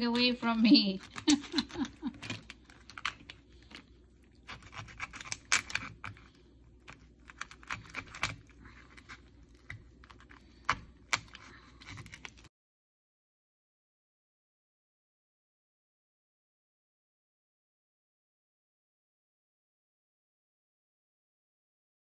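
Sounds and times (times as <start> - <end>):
knife scraping lobster shell: 1.0 - 12.5.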